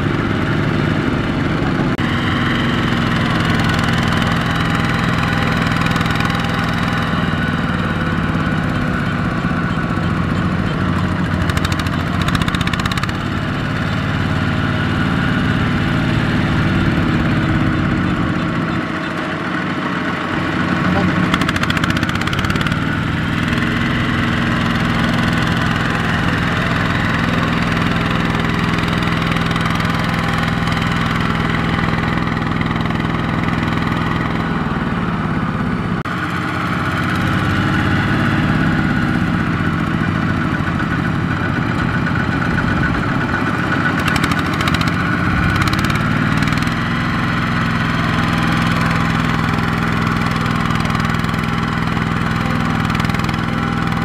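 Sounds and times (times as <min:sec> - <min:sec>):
diesel tractor engine under load: 0:00.0 - 0:54.0.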